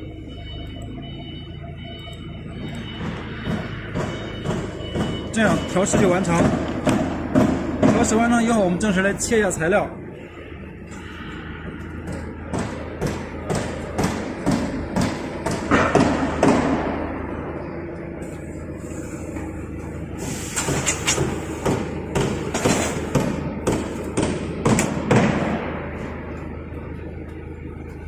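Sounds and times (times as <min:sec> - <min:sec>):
machine hum: 0:09.9 - 0:28.0.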